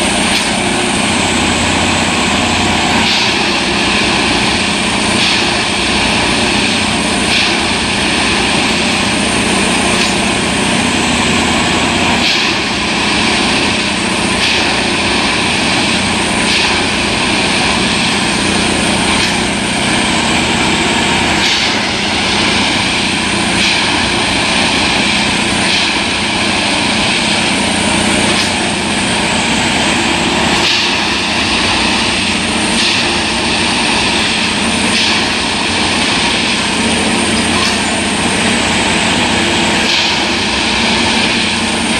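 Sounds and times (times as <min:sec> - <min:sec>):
track machine droning: 0:00.0 - 0:41.9.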